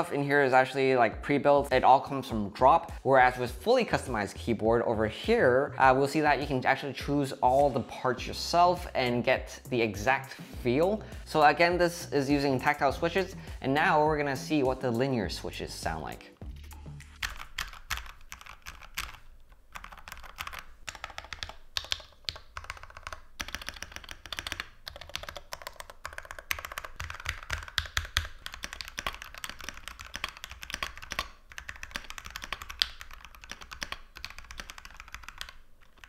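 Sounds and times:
mechanical keyboard typing: 17.1s - 36.0s.

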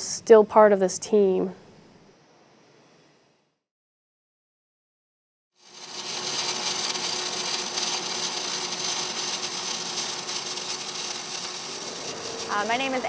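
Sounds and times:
welding arc sizzling and crackling: 5.6s - 13.0s.

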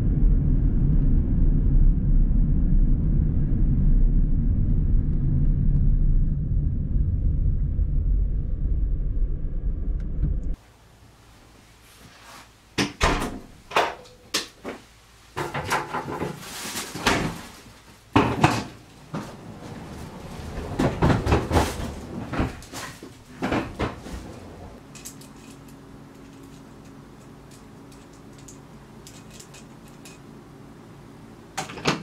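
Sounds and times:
cupboard doors opening and shutting: 12.8s - 14.2s, 18.2s - 24.8s, 31.6s - 32.0s
clunks and rustling: 12.8s - 30.3s.

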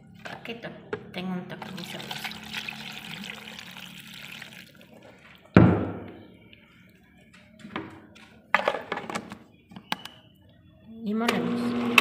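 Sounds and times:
liquid pouring into blender jar: 1.6s - 5.0s.

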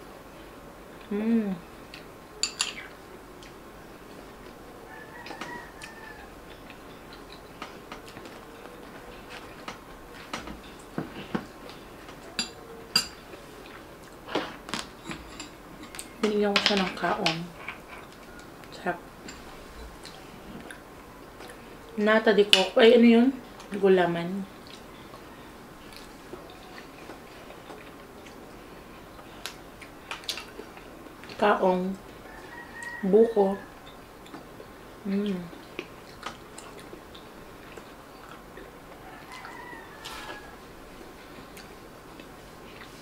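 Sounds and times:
soft chewing and mouth clicks: 1.8s - 16.2s, 17.5s - 22.6s, 23.4s - 23.8s, 24.6s - 31.4s, 33.8s - 43.0s
metal spoon clinking ceramic bowl: 2.4s - 2.8s, 12.4s - 13.2s.

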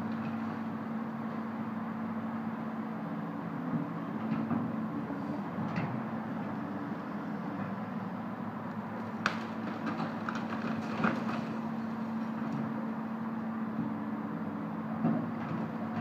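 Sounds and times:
excavator diesel engine running: 0.0s - 16.0s
sharp cracks and knocks of demolition: 9.1s - 11.6s.

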